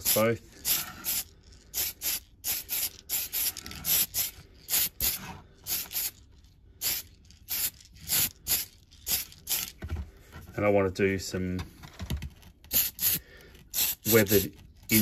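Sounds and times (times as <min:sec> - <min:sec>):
aerosol spray can hissing: 0:00.0 - 0:06.2, 0:06.8 - 0:09.8, 0:12.7 - 0:15.0.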